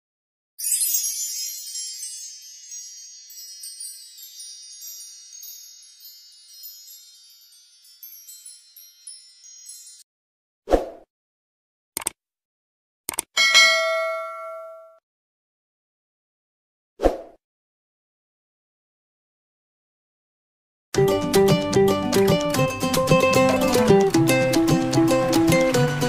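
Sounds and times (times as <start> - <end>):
wind chimes tinkling: 0.6 - 10.1, 13.4 - 14.8.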